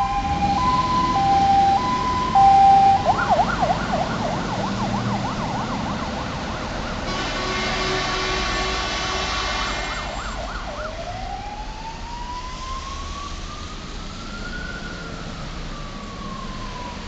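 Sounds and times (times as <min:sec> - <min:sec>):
fire engine siren: 0:00.0 - 0:17.0
horn blast: 0:07.0 - 0:10.2.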